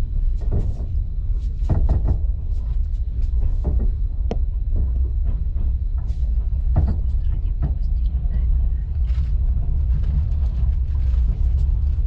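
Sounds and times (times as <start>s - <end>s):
train rumbling on rails: 0.0s - 12.0s.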